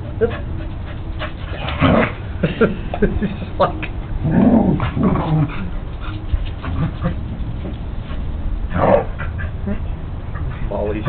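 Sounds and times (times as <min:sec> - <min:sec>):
dogs play-fighting: 0:00.0 - 0:02.3, 0:04.2 - 0:11.0.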